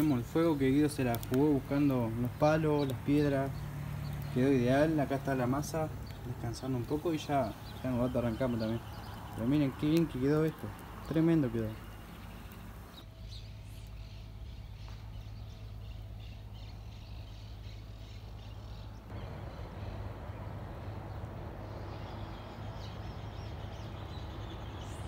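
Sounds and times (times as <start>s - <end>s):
small birds chirping: 0.0s - 25.0s
steady low rumble: 17.9s - 25.0s
even rushing noise: 19.1s - 24.7s.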